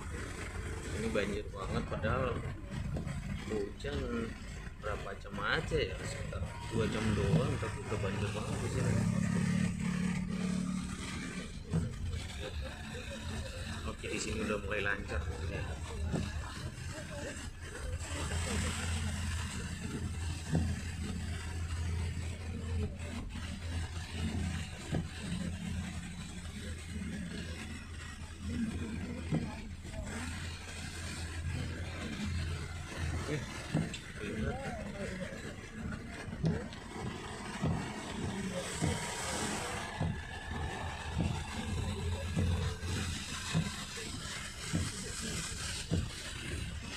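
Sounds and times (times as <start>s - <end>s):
car engine and tyres droning: 0.0s - 46.9s
rain hissing on wet road: 0.0s - 46.9s
windscreen wipers thumping: 28.6s - 46.9s.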